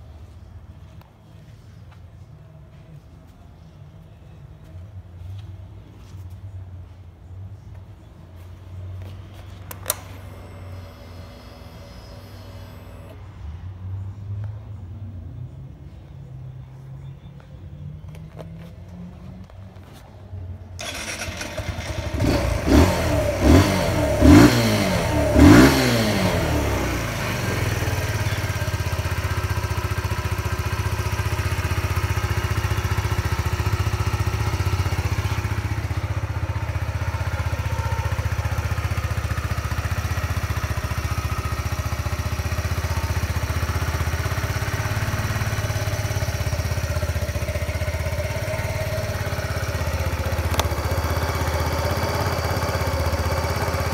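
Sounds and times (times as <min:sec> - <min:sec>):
motorcycle engine idling: 0:07.7 - 0:13.2, 0:20.8 - 0:53.9
motorcycle engine starting and revving: 0:09.0 - 0:13.4, 0:20.8 - 0:53.9.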